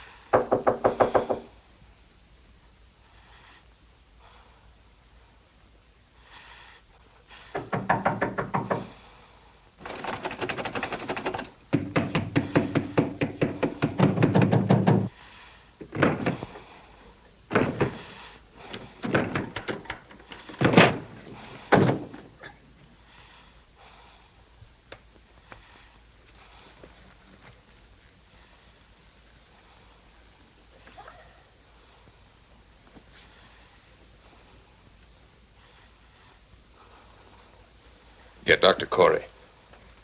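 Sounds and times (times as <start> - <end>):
pounding on wooden door: 0.3 - 1.5, 7.5 - 9.0, 11.2 - 15.1, 15.8 - 16.6, 17.5 - 22.3
door bursting open: 18.8 - 22.3.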